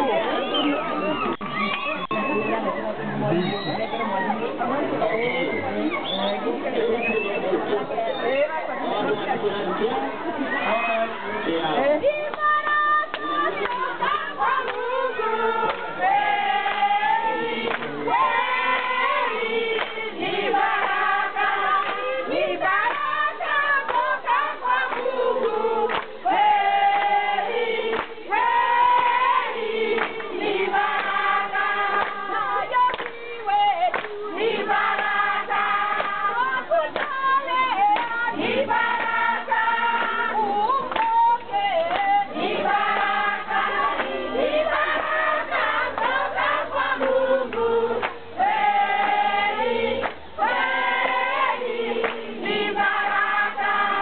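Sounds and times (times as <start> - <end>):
crowd singing in chorus: 8.8 - 54.0
hand clapping: 13.1 - 13.8, 15.6 - 15.9, 17.7 - 17.9, 19.7 - 20.0, 21.8 - 22.1, 23.9 - 24.1, 24.9 - 26.2, 27.9 - 28.2, 30.0 - 30.3, 30.9 - 31.2, 31.9 - 32.2, 32.9 - 33.2, 33.9 - 34.2, 35.9 - 36.3, 36.9 - 37.2, 37.9 - 38.2, 40.0 - 42.1, 47.0 - 48.2, 50.0 - 50.2, 52.0 - 52.3.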